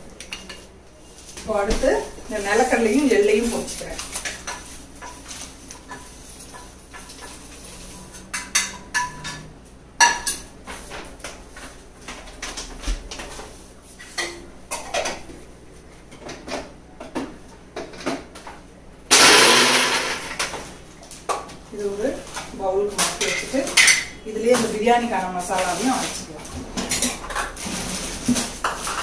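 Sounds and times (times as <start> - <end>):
mixer grinder grinding: 19.1 - 20.5.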